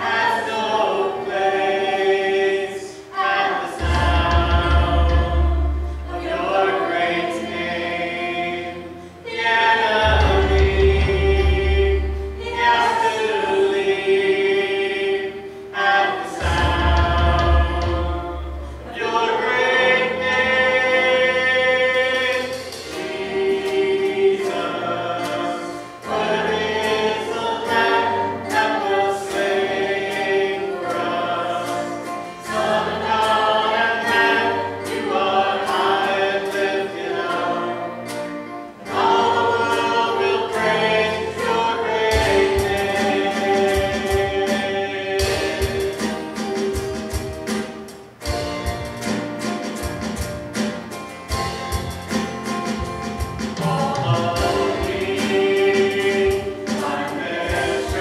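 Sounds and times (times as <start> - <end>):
choir singing a hymn: 0.0 - 58.0
instrumental accompaniment: 0.0 - 58.0
deep bass notes: 3.8 - 6.0.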